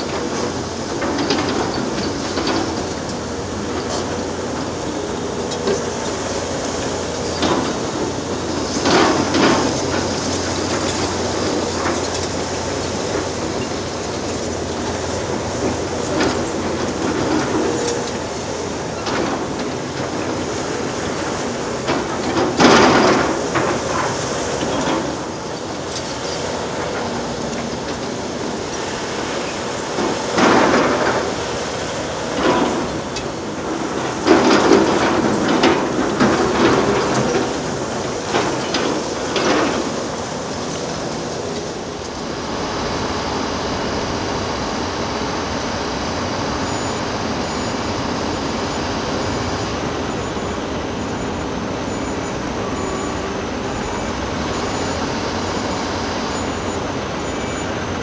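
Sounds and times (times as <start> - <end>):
excavator engine running: 0.0 - 58.0.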